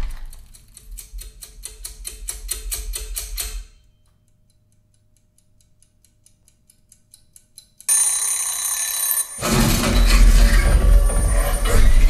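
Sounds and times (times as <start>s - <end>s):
high-pitched ringing screech: 8.4s - 12.0s.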